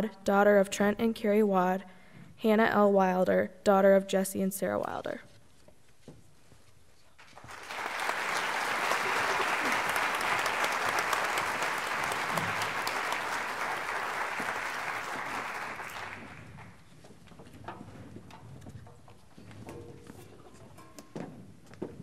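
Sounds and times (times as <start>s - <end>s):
audience applauding: 7.2s - 16.8s.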